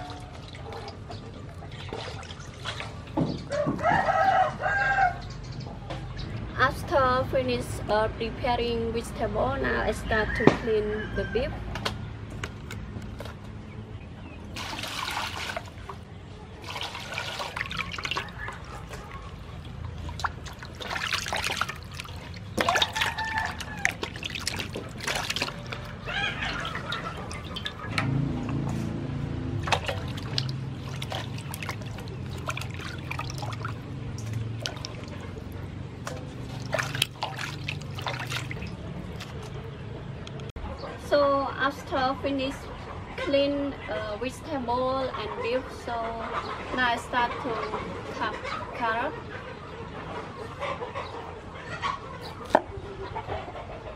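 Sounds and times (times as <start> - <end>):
water splashing in metal basin: 0.0 - 3.5, 14.5 - 39.6
water pouring: 16.6 - 28.0, 29.6 - 35.5, 36.1 - 39.4.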